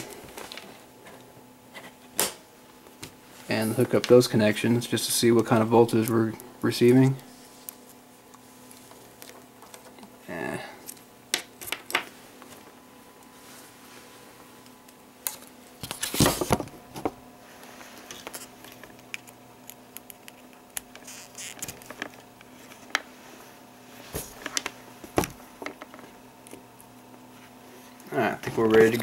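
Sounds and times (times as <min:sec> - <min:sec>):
faint steady hum: 0:00.0 - 0:29.0.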